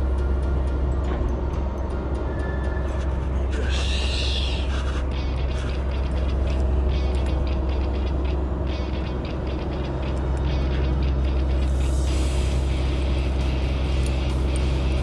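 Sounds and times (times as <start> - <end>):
background music: 0.0 - 15.0
steady low rumble: 0.0 - 15.0
light ticks: 13.9 - 14.7.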